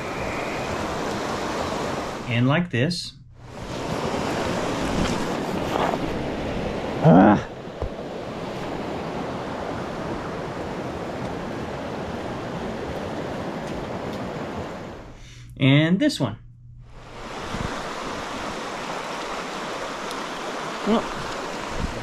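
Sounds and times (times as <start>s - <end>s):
stream water rushing: 0.0s - 2.3s, 3.4s - 15.1s, 17.0s - 22.0s
man exclaiming: 7.0s - 7.5s.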